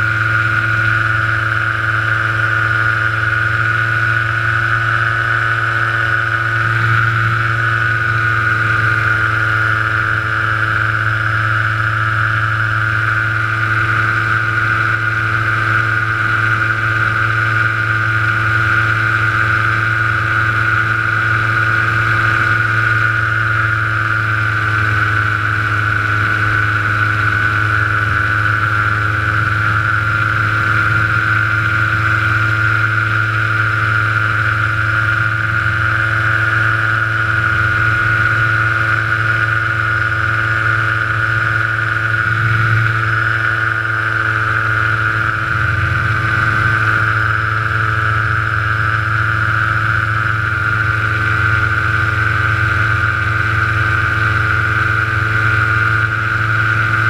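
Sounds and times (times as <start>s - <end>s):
paramotor engine whining: 0.0s - 57.0s.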